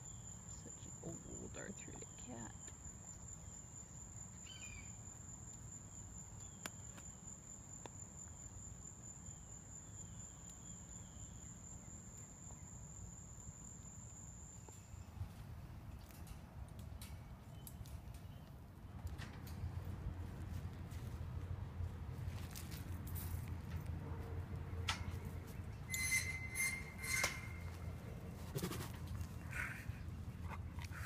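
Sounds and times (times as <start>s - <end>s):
insect trilling: 25.9s - 27.9s.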